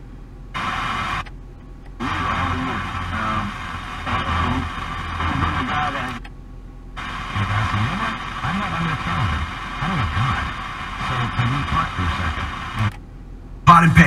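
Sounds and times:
radio broadcast snatches with voices: 0:00.6 - 0:01.2, 0:02.0 - 0:06.2, 0:07.0 - 0:12.9.

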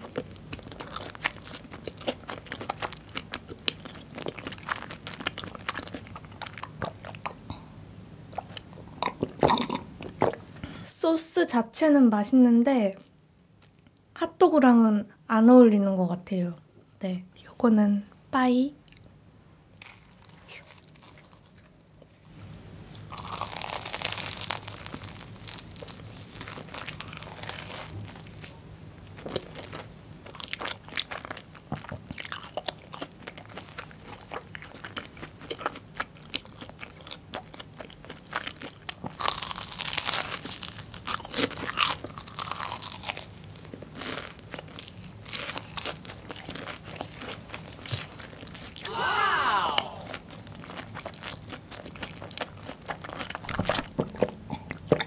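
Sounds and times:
chewing: 0:00.0 - 0:07.6, 0:08.3 - 0:10.4, 0:19.8 - 0:22.3, 0:22.9 - 0:48.9, 0:49.8 - 0:55.0
crunchy bites: 0:23.0 - 0:54.3.

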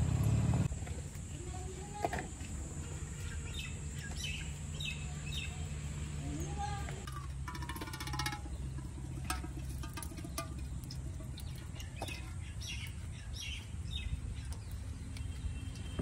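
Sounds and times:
birds chirping: 0:02.7 - 0:16.0.

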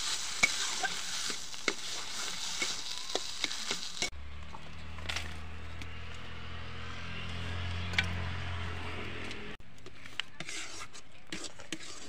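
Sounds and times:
metal spatula scraping pan: 0:00.0 - 0:04.1, 0:10.4 - 0:12.0
paste sizzling in oil: 0:00.0 - 0:04.1.

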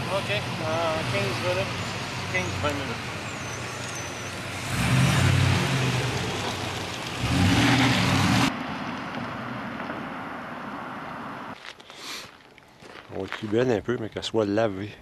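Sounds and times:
truck moving off down road: 0:00.0 - 0:11.6
pickup truck engine accelerating: 0:02.6 - 0:08.5.

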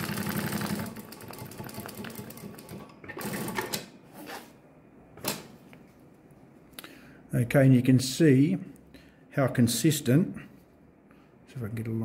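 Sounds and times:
sewing machine stitching: 0:00.0 - 0:03.9.

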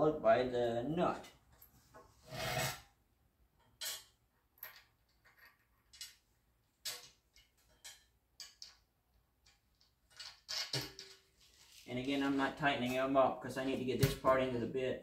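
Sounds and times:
metallic clicks of nut on bolt: 0:06.8 - 0:11.2.

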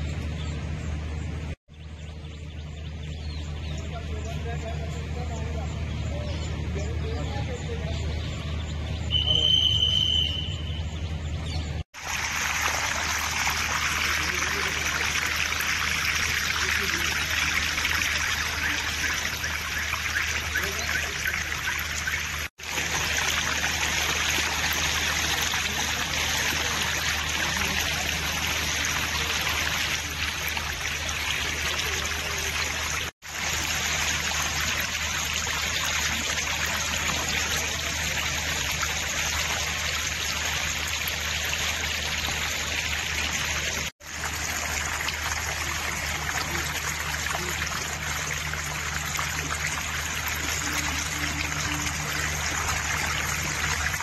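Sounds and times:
floodwater rushing across road: 0:12.0 - 0:54.0.

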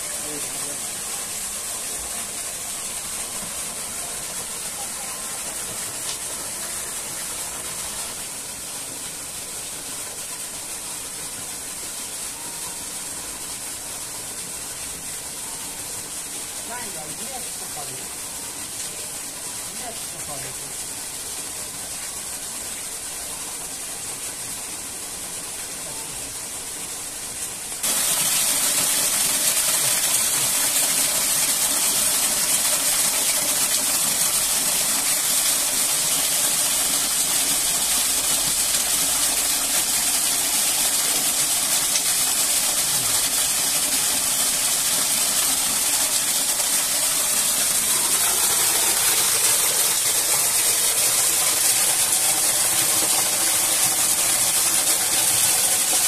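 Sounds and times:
waterfall rushing: 0:00.0 - 0:14.3, 0:25.6 - 0:56.0.

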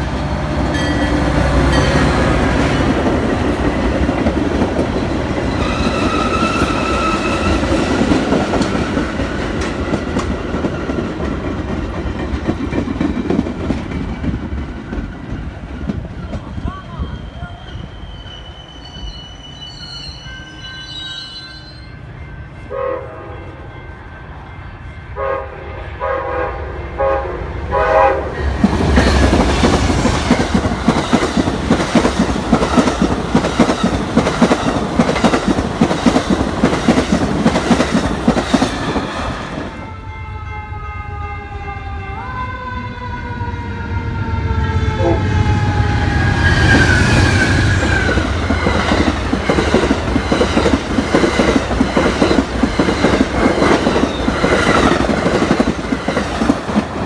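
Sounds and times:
train rumbling past: 0:00.0 - 0:57.0
train horn blasts: 0:22.6 - 0:23.7, 0:25.1 - 0:28.4, 0:39.8 - 0:43.3, 0:44.6 - 0:46.9.

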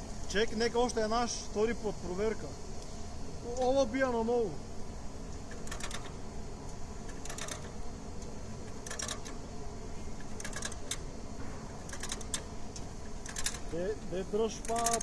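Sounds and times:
low background noise: 0:00.0 - 0:15.0
rapid sharp clicks: 0:05.3 - 0:09.6, 0:10.2 - 0:15.0.

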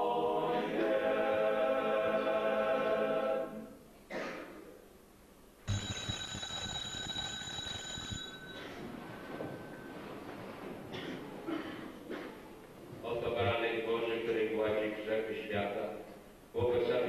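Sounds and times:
choir singing: 0:00.0 - 0:03.8
bell ringing: 0:05.7 - 0:10.0.

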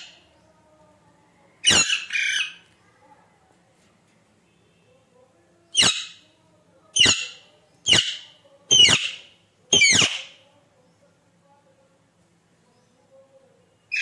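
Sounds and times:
parakeet screeching calls: 0:07.0 - 0:10.3.

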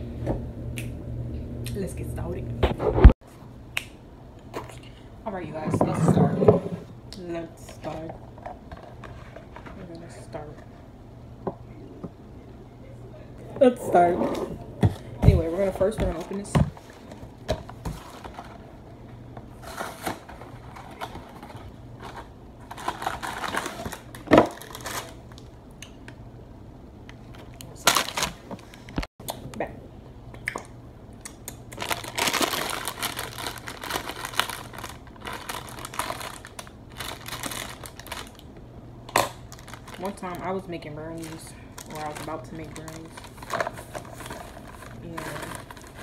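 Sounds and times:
cardboard box and plastic bag crinkling: 0:19.6 - 0:25.3, 0:31.8 - 0:38.4, 0:39.1 - 0:46.0.

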